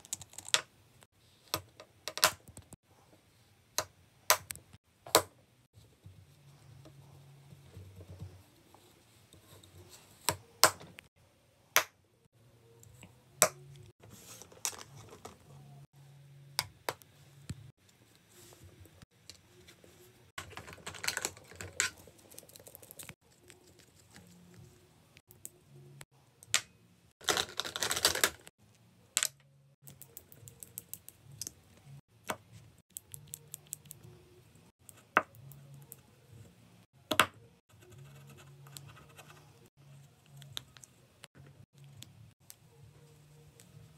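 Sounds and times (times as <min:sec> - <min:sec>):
plastic rattling: 0:20.4 - 0:22.0
plastic cases clicking and clattering: 0:27.2 - 0:28.4.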